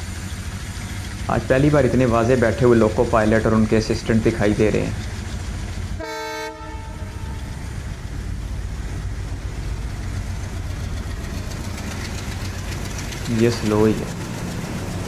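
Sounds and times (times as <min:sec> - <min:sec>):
diesel train rumble: 0:00.0 - 0:15.0
train horn blast: 0:06.0 - 0:07.5.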